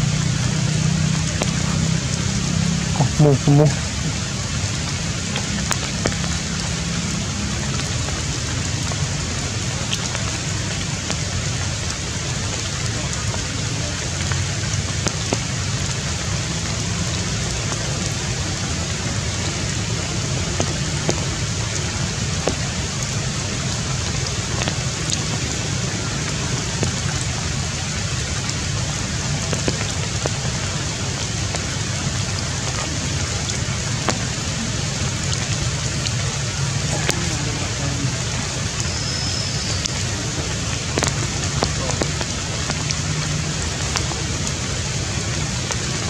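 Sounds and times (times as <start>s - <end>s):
rain on foliage: 0.0s - 46.0s
drops ticking: 39.8s - 44.6s.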